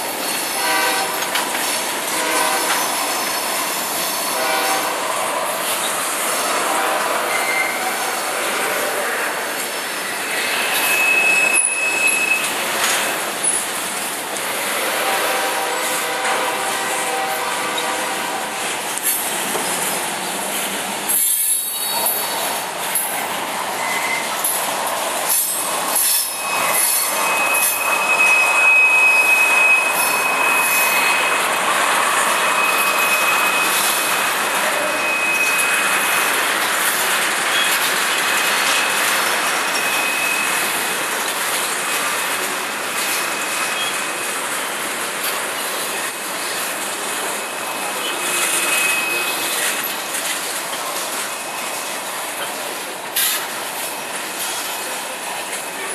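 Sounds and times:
train wheels rumbling on rail: 0:00.0 - 0:55.9
high-pitched wheel squeal: 0:07.2 - 0:08.0, 0:10.0 - 0:12.6, 0:23.8 - 0:24.4, 0:25.4 - 0:36.4, 0:39.6 - 0:40.8, 0:47.2 - 0:49.9.

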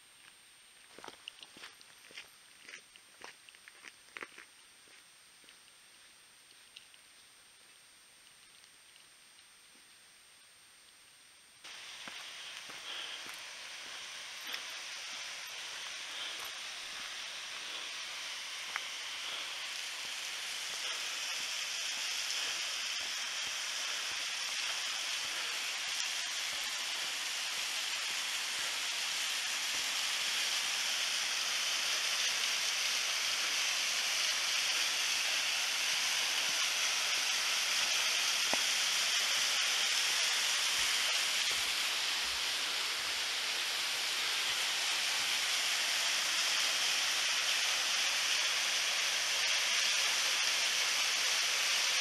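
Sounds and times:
waterfall rushing: 0:11.7 - 0:52.0.

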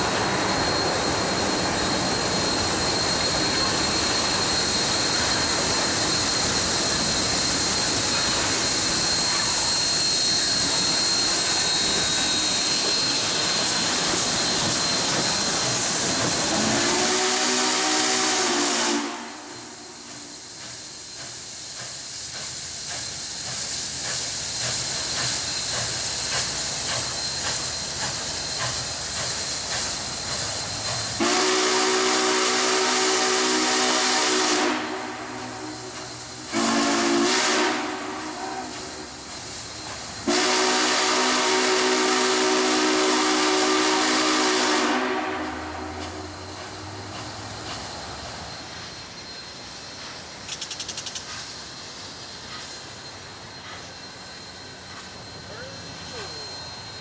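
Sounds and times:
steam locomotive chuffing: 0:00.0 - 0:57.0
steam whistle blasts: 0:16.0 - 0:20.7, 0:30.3 - 0:39.3, 0:40.2 - 0:47.0.

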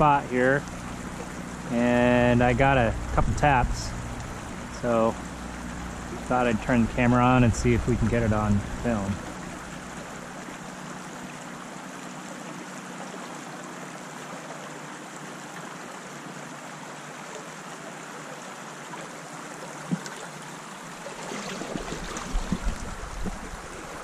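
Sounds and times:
low bumps: 0:00.0 - 0:09.6, 0:21.6 - 0:24.0
river water rushing: 0:00.0 - 0:24.0.

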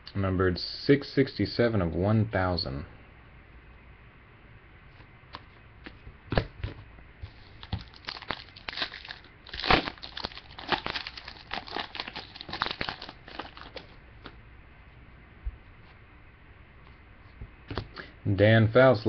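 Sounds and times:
foil wrapper tearing and crinkling: 0:07.5 - 0:13.9.

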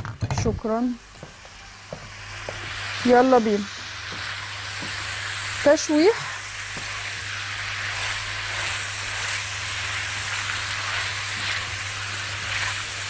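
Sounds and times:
sausage sizzling in a wok: 0:00.4 - 0:13.0.

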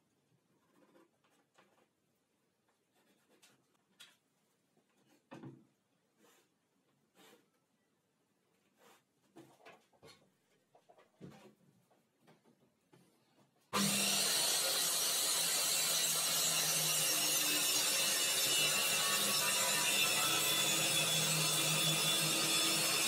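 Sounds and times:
pencil scratching against ruler: 0:00.5 - 0:02.0, 0:02.7 - 0:03.8, 0:06.1 - 0:07.6
circular saw cutting chipboard: 0:13.8 - 0:23.0.

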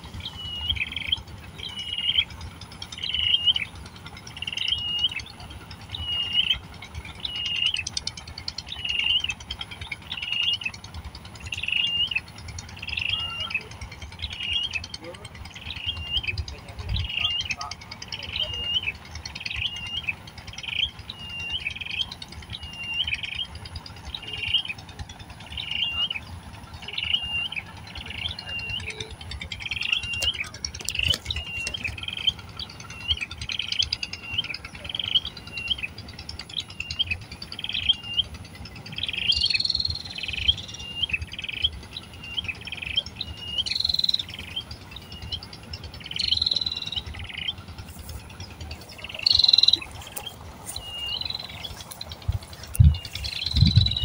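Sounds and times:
harsh bird calls: 0:00.0 - 0:54.0
nestlings chirping: 0:26.9 - 0:35.9, 0:38.9 - 0:54.0.

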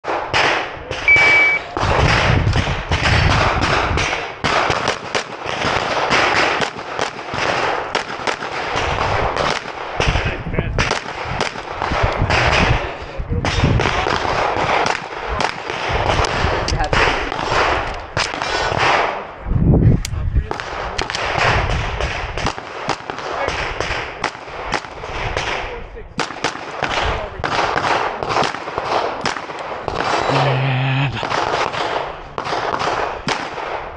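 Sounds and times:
rapid pistol shots: 0:00.0 - 0:19.4, 0:20.5 - 0:33.9
shot timer beep: 0:01.1 - 0:01.6.

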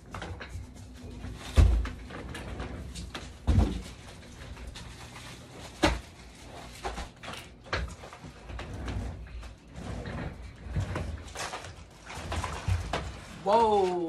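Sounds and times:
plastic wrapping rustling: 0:03.1 - 0:08.3, 0:10.4 - 0:14.0.

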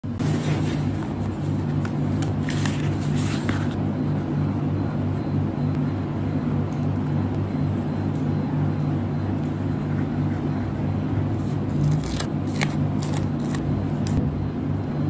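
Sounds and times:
steady low hum: 0:00.0 - 0:15.0
sticker peeling crackles: 0:11.4 - 0:14.2.

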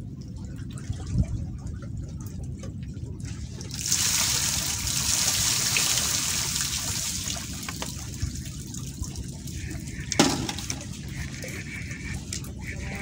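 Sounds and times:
sea water sloshing: 0:00.0 - 0:13.0.

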